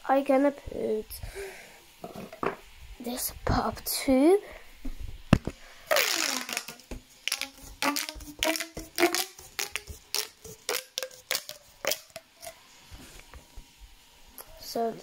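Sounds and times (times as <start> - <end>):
pop tube toy clicking and popping: 5.9 - 12.5.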